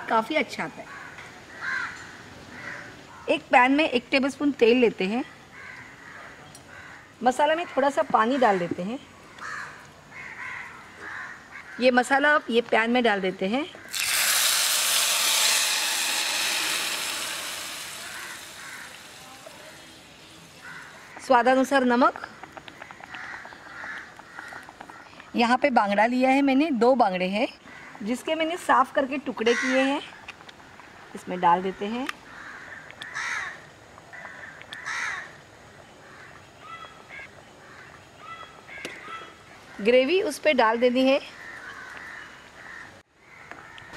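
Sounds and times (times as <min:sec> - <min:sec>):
crow cawing: 0:00.9 - 0:03.2, 0:05.6 - 0:07.1, 0:09.4 - 0:11.8, 0:15.8 - 0:19.8, 0:20.6 - 0:21.2, 0:23.0 - 0:25.1, 0:29.5 - 0:29.8, 0:32.2 - 0:35.4, 0:41.4 - 0:43.9
paste sizzling in hot oil: 0:13.9 - 0:21.2.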